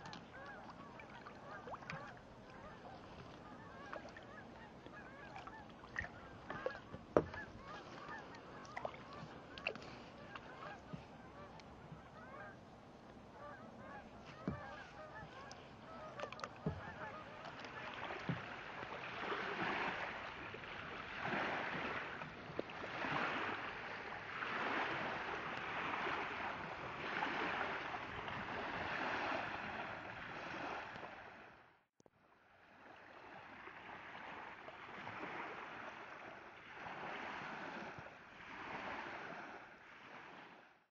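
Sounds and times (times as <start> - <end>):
geese honking: 0.0 - 12.6, 13.4 - 18.2
water swishing: 0.0 - 31.4.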